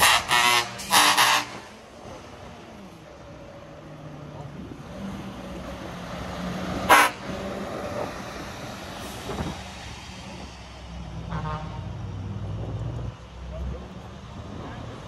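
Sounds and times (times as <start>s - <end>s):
truck engines running: 0.0s - 15.0s
higher-pitched horn toot: 6.9s - 7.3s.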